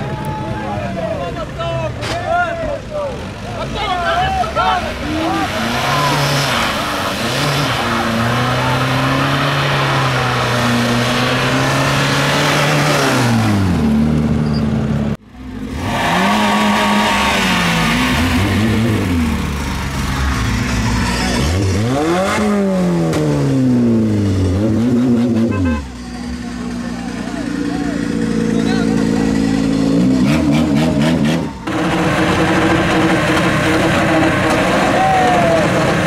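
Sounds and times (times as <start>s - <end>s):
car engine revving: 3.4s - 36.0s
car engine at high revs: 4.1s - 36.0s.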